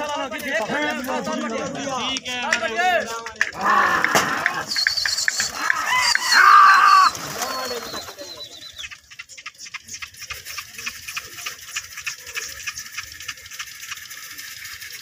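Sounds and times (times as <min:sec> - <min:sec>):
pigeon wings flapping: 0:03.2 - 0:15.0
shrill wavering human call: 0:03.6 - 0:08.9.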